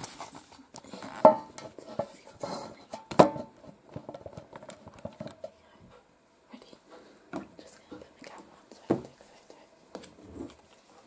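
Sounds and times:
light knocks and taps of dishes: 8.8 - 9.2.

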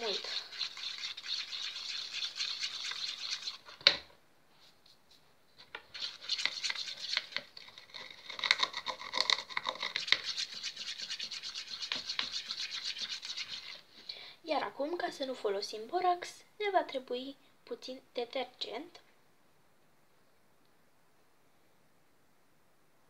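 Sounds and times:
stick scraping in glue: 5.6 - 13.9.

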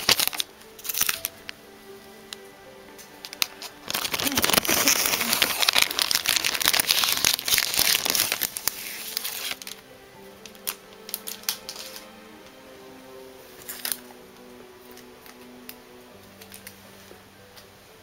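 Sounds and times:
plastic wrapping crinkling: 0.0 - 1.6, 3.0 - 9.8, 10.4 - 12.1, 13.6 - 14.1
soft background music: 0.0 - 18.0.

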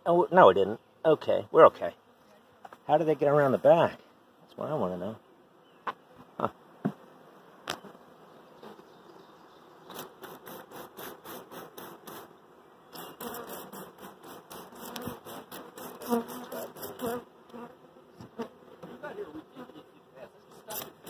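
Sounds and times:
bees buzzing: 1.8 - 21.0.

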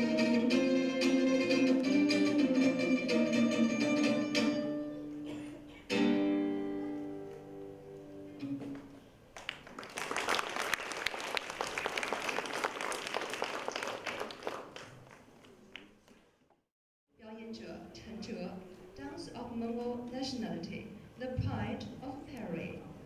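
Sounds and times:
plucked lute chord ringing: 0.0 - 5.2
audience applauding: 9.4 - 16.1.

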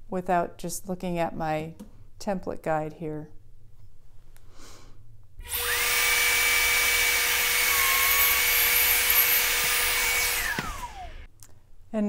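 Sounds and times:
router high whine: 5.4 - 11.3.

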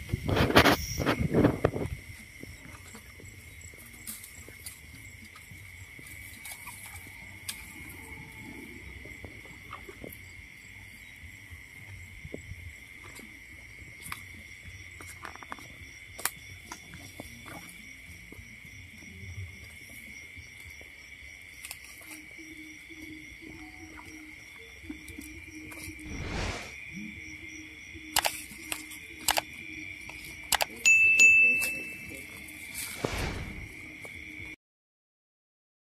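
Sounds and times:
insects trilling: 0.0 - 34.6
low rumble: 26.0 - 26.8, 33.0 - 33.9.

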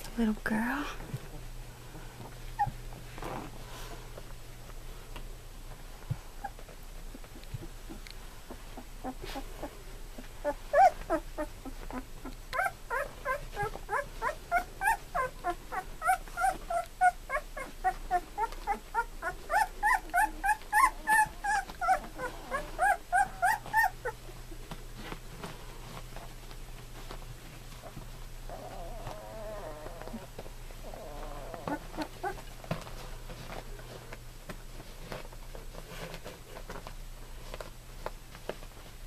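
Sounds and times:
puppies whimpering: 2.5 - 2.8, 6.4 - 24.2, 28.5 - 33.0.

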